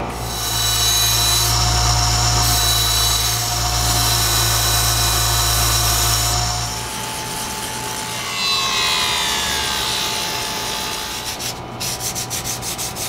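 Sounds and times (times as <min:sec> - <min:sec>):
machine whine winding down: 0:00.0 - 0:07.2.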